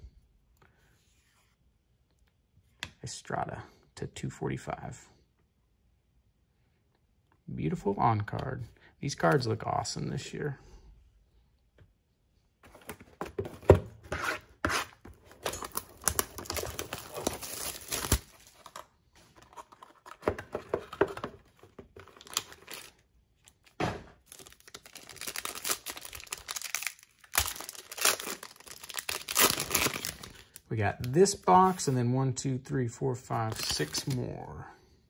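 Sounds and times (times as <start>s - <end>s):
foil pack crinkling and tearing: 15.4s - 18.8s, 22.0s - 23.6s, 24.2s - 30.6s.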